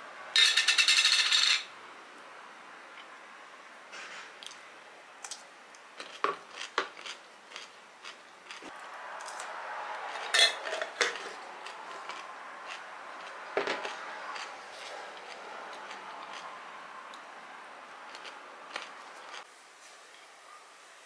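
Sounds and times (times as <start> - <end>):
crunchy bites and chewing: 6.0 - 9.5, 10.9 - 16.5, 18.1 - 19.4.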